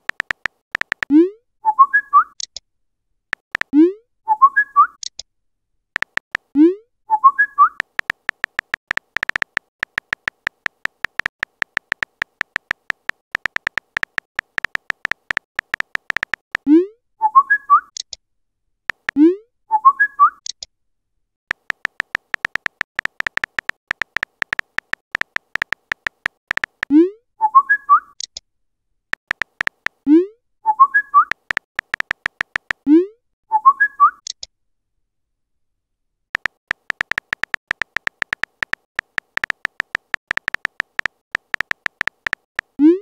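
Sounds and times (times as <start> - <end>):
phone keyboard typing clicks: 0.0 - 1.1, 3.3 - 3.8, 6.0 - 6.5, 7.7 - 16.7, 18.9 - 19.2, 21.5 - 26.9, 29.2 - 30.0, 31.2 - 32.9, 36.4 - 42.8.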